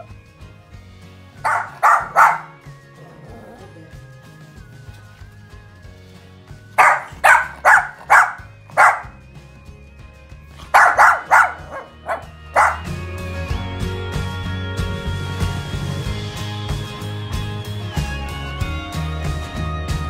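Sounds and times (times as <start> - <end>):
background music: 0.0 - 20.0
small dog barking: 1.4 - 2.6, 6.8 - 9.2, 10.7 - 12.9.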